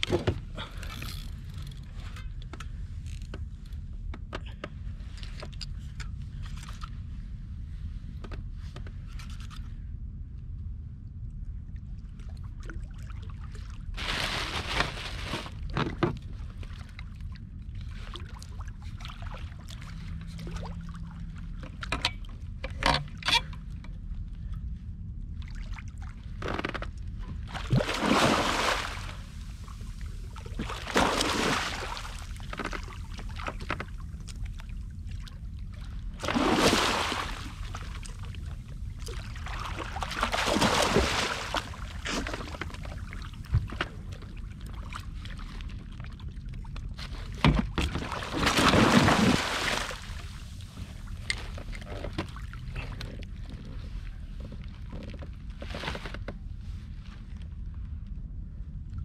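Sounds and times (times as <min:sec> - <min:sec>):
steady low rumble: 0:00.0 - 0:59.0
water sloshing against inflatable boat: 0:11.9 - 0:24.3, 0:25.3 - 0:57.4.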